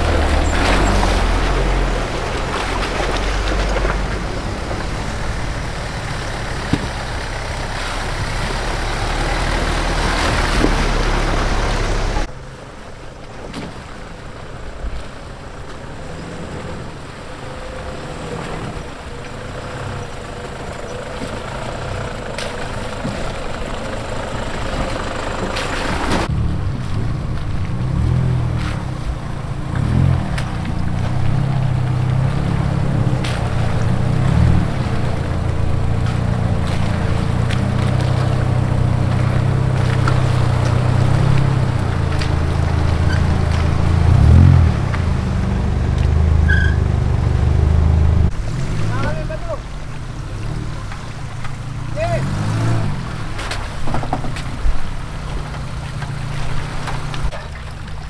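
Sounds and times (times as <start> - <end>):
distant engine hum: 0.0 - 58.0
off-road vehicle engine running: 0.0 - 58.0
water splashing: 0.0 - 58.0.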